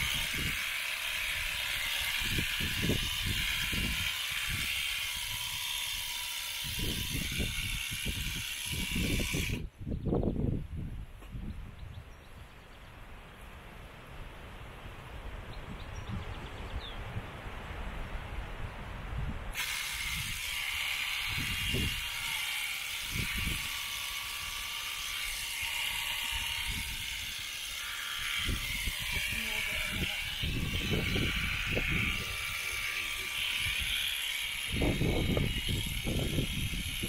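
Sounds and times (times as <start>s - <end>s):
shearing handpiece cutting fleece: 0.0s - 9.6s, 19.5s - 37.0s.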